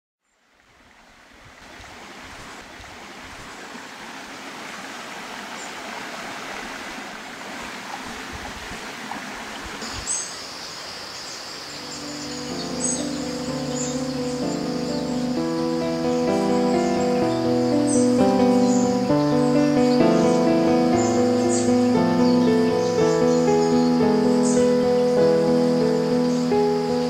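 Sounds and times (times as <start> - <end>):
stream water running: 0.2 - 27.0.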